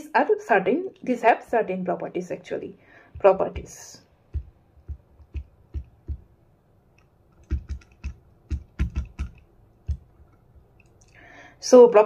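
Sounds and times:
stylus tapping on glass screen: 3.2s - 6.4s, 7.0s - 10.1s.

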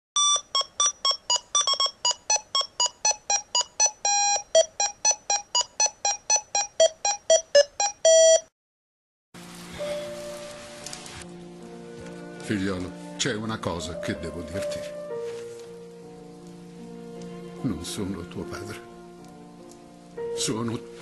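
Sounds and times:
electronic square-wave jingle: 0.2s - 8.5s
steady hiss: 9.4s - 13.2s, 14.9s - 21.0s.

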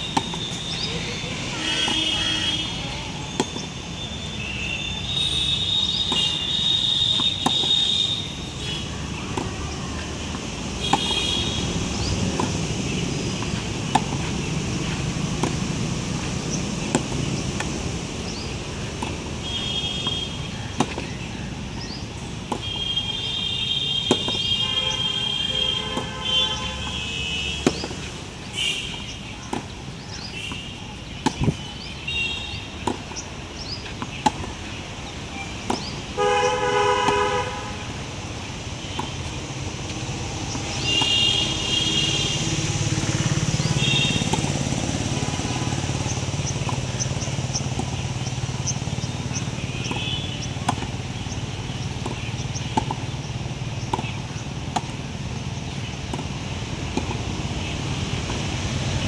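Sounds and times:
racket hitting tennis ball: 0.1s - 2.7s, 3.4s - 3.8s, 5.9s - 8.0s, 8.8s - 19.4s, 20.8s - 21.2s, 22.4s - 22.8s, 24.0s - 24.6s, 27.5s - 31.6s, 32.7s - 34.7s, 35.6s - 36.2s, 38.9s - 53.2s, 53.8s - 55.2s, 56.0s - 57.4s.

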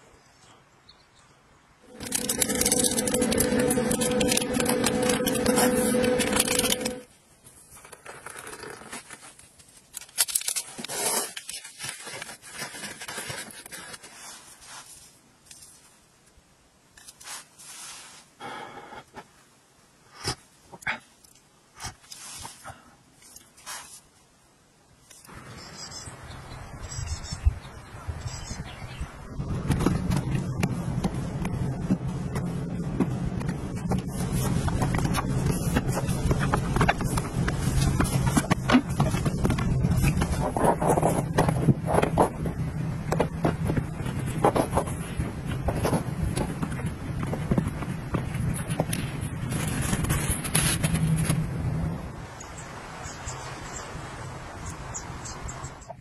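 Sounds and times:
steady low hum: 1.8s - 7.1s, 29.2s - 52.0s
rustling: 1.8s - 16.1s, 16.9s - 18.4s, 21.8s - 24.3s, 29.5s - 51.8s
spoon scraping in metal cup: 1.9s - 7.0s.

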